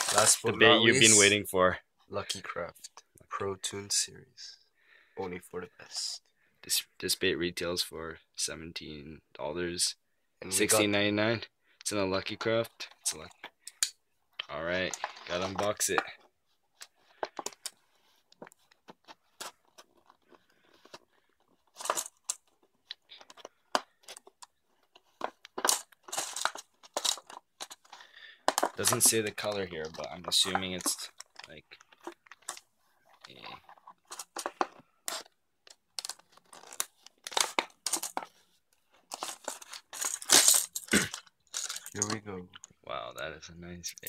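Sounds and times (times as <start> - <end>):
plastic crackling: 16.8 - 42.7.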